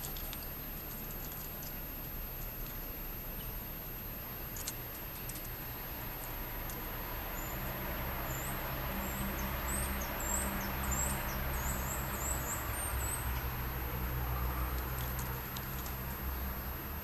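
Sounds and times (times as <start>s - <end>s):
low steady rumble: 0.0s - 17.0s
squirrel gnawing shells: 14.6s - 16.3s.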